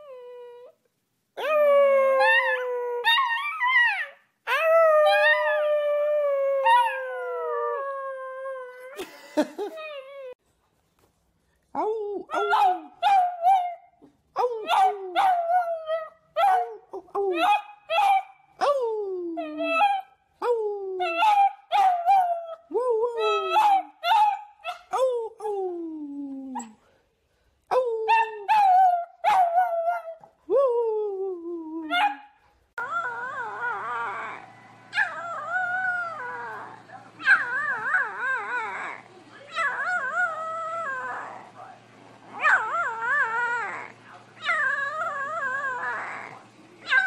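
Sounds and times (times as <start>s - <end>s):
puppies howling and yipping: 32.8s - 41.6s.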